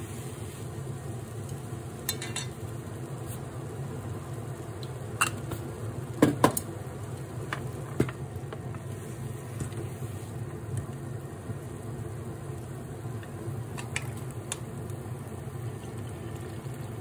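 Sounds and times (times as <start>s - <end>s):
induction hob fan hum: 0.0s - 17.0s
chopsticks tapping metal pan: 2.1s - 2.6s.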